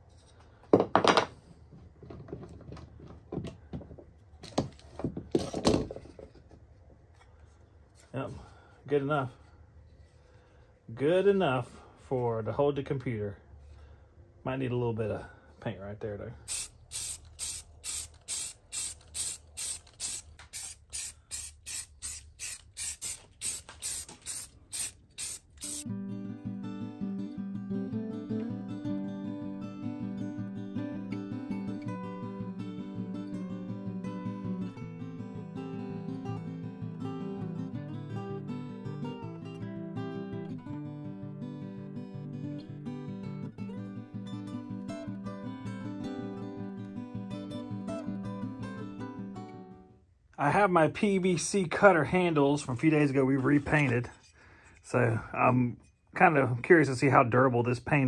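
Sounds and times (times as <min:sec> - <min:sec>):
clamp parts and wood knocking: 0:00.6 - 0:06.7
spray paint can hissing: 0:16.5 - 0:25.8
acoustic guitar music: 0:25.8 - 0:49.9.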